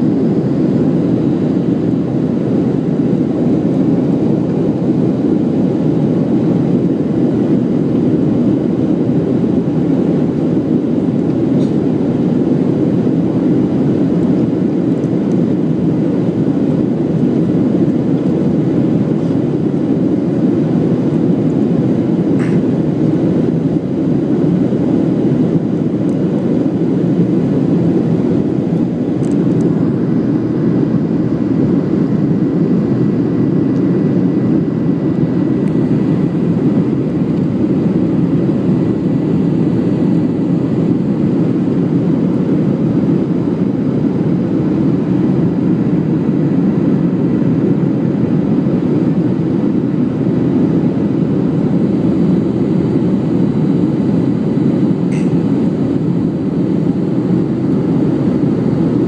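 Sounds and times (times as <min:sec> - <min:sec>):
jet engine and airflow noise: 0:00.0 - 0:59.0
faint steady high tone: 0:55.1 - 0:55.4.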